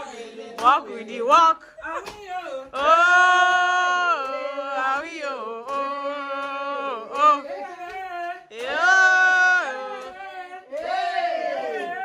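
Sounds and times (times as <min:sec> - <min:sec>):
woman singing long notes: 0:01.4 - 0:10.7.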